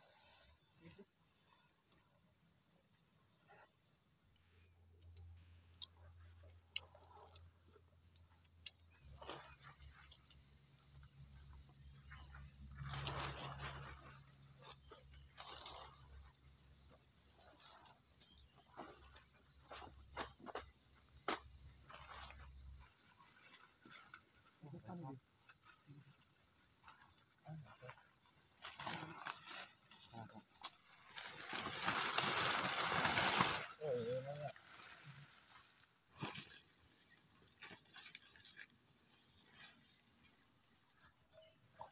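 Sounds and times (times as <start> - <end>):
insects chirring: 0.0 - 41.9
tent nylon rustling: 9.0 - 41.9.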